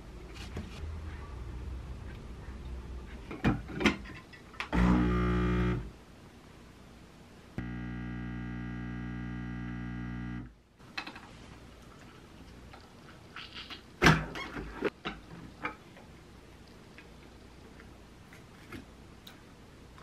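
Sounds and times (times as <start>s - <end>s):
coffee machine pump buzzing: 4.8s - 5.8s, 7.6s - 10.5s.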